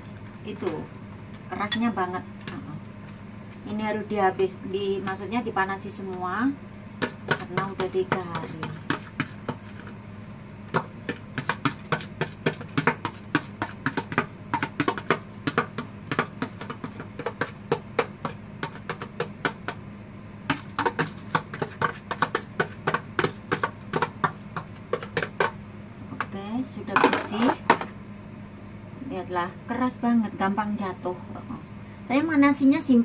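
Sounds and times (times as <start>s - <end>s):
rice knocking in plastic container: 10.7s - 19.8s, 20.5s - 25.6s.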